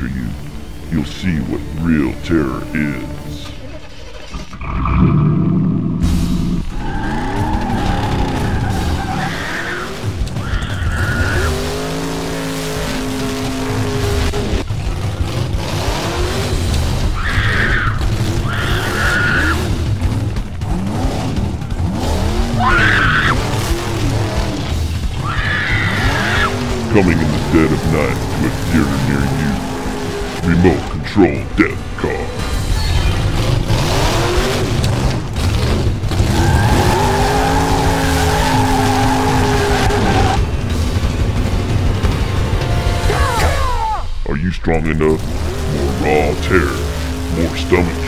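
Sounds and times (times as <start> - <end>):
car engine revving: 0.0 - 48.0
tyre squeals: 6.5 - 14.1, 17.0 - 19.8, 25.1 - 26.9, 36.2 - 40.5.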